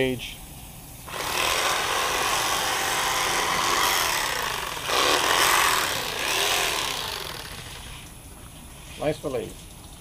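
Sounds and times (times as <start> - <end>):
electric knife buzzing: 1.1 - 8.1.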